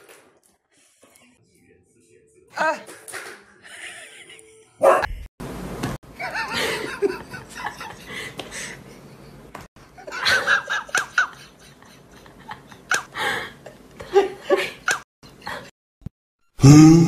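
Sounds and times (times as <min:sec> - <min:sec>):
music: 0:01.0 - 0:04.8
people giggling and laughing: 0:03.5 - 0:04.8, 0:06.2 - 0:09.2, 0:10.0 - 0:13.1.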